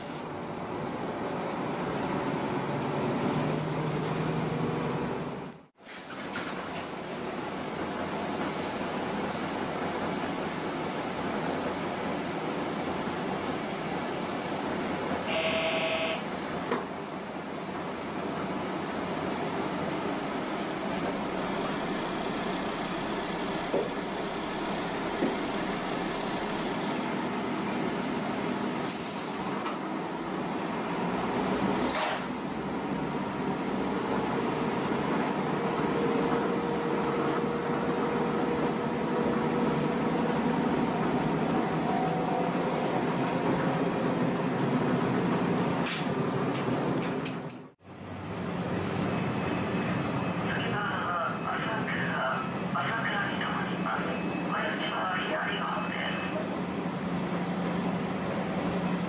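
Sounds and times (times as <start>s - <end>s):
railcar engine and wheels running: 0.0s - 59.0s
air hiss: 28.8s - 29.8s.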